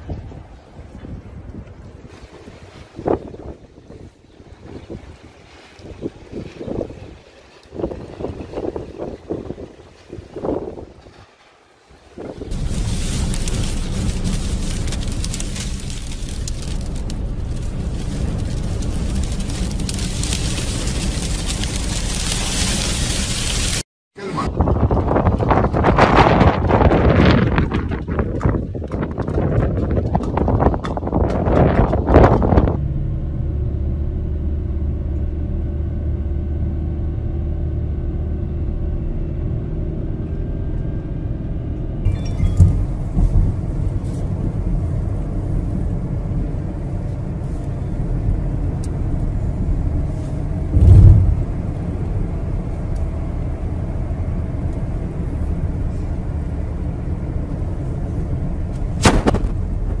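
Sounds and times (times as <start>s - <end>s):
car driving rumble inside cabin: 12.5s - 23.8s, 30.6s - 60.0s
loud thump: 50.7s - 51.5s.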